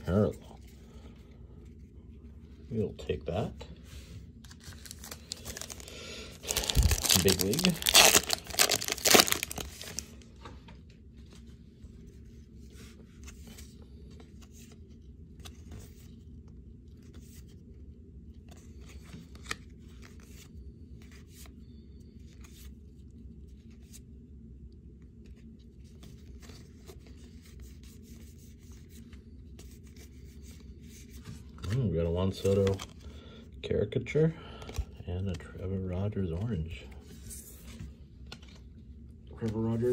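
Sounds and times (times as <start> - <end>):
trading cards rustling: 4.3 - 10.2
foil wrapper tearing: 4.7 - 10.1.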